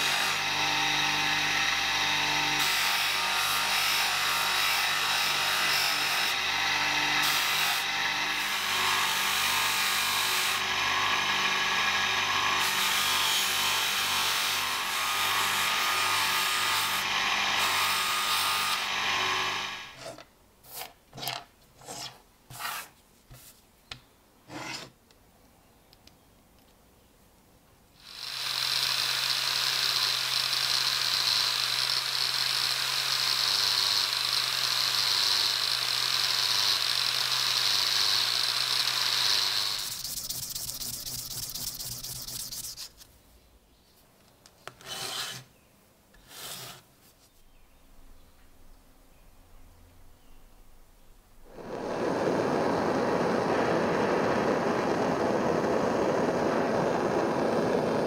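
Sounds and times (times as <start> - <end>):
handheld disc grinder running: 28.1 - 42.8, 51.5 - 58.0
part rubbing on buffing wheel: 39.8 - 43.0, 44.8 - 45.5
buffing wheel motor running: 51.5 - 58.0.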